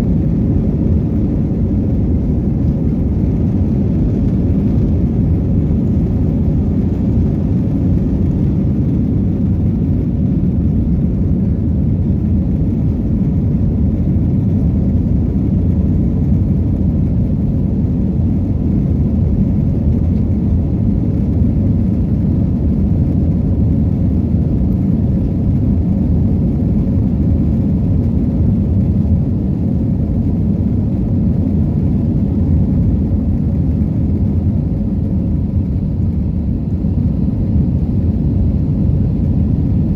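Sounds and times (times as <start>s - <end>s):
jet engines rumbling: 0.0s - 39.9s.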